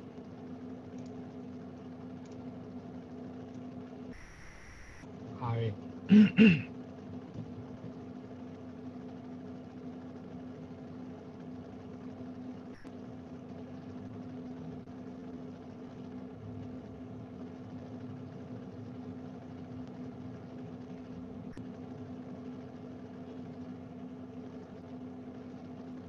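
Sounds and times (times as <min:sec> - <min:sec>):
low machine-like hum: 0:00.0 - 0:26.0.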